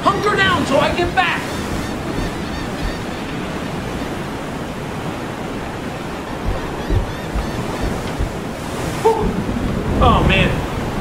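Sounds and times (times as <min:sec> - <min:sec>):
waves rushing: 0:00.0 - 0:11.0
wind: 0:00.0 - 0:11.0
low thumps: 0:01.0 - 0:09.7.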